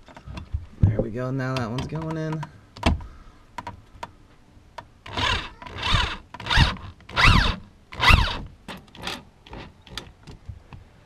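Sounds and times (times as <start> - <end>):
cordless drill driving screw: 5.1 - 10.0.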